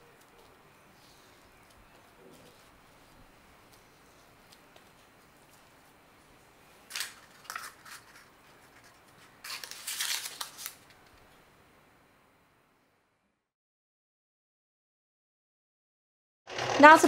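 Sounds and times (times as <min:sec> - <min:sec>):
paper cupcake case crinkling: 0:06.9 - 0:11.2.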